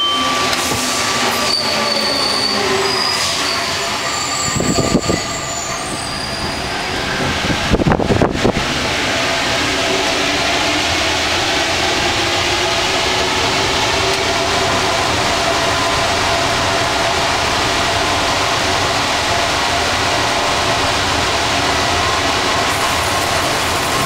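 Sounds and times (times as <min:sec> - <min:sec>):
train rumbling through tunnel: 0:00.0 - 0:24.0.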